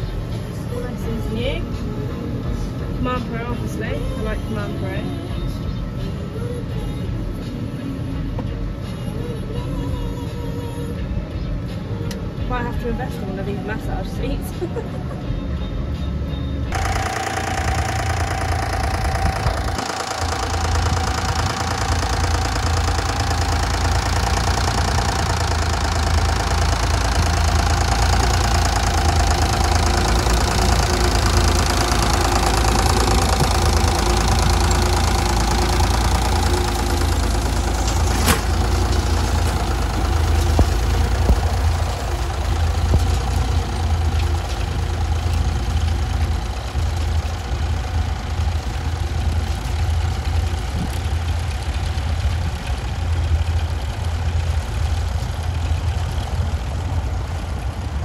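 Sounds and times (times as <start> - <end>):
tractor engine running under load: 0.0 - 58.0.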